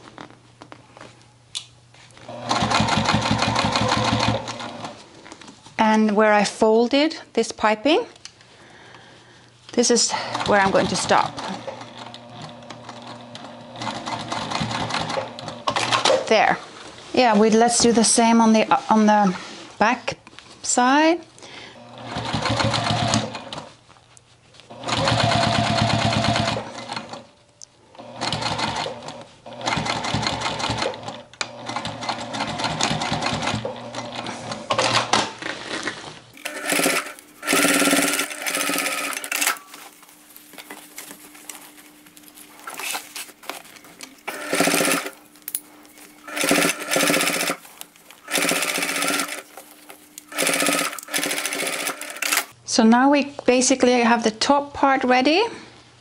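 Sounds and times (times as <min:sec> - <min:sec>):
sewing machine stitching: 0:02.3 - 0:05.0, 0:10.1 - 0:16.2, 0:21.8 - 0:23.7, 0:24.7 - 0:27.2, 0:28.0 - 0:35.2, 0:36.4 - 0:39.9, 0:44.2 - 0:45.2, 0:46.2 - 0:49.6, 0:50.2 - 0:52.5.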